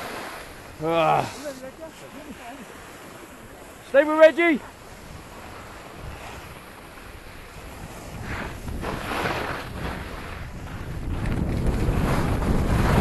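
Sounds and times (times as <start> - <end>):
skis scraping over packed snow: 0.0 - 13.0
wind noise on microphone: 4.7 - 13.0.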